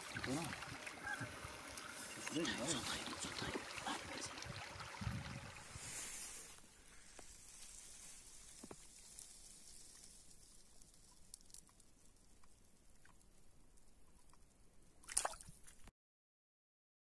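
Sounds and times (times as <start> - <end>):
shallow stream hissing: 0.0 - 10.8.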